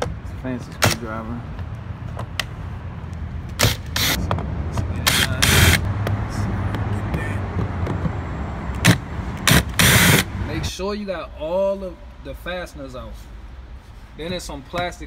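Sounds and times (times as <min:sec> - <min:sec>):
cordless drill running: 0:09.5 - 0:10.3.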